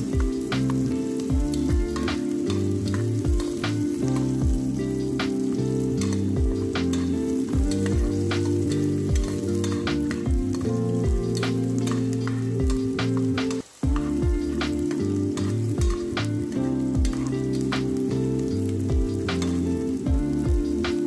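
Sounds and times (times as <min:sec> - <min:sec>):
background music with bass and beat: 0:00.0 - 0:21.0
onion and garlic sizzling in oil: 0:00.0 - 0:21.0
spoon stirring in pot: 0:00.6 - 0:16.1.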